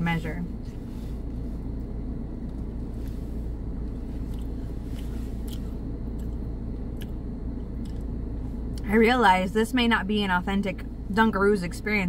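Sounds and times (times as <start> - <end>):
car cabin rumble: 0.0 - 12.0
crunchy cookie chewing: 3.8 - 8.8.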